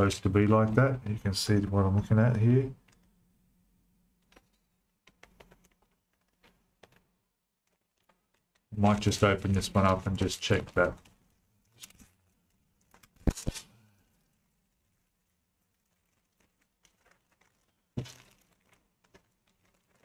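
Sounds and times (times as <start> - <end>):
plastic bag crinkling: 4.2 - 20.0.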